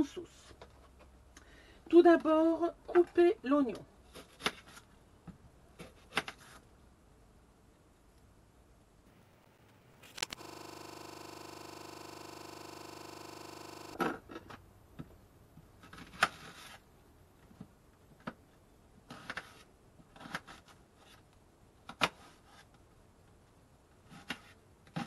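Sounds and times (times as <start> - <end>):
electronic hum: 9.1 - 14.0.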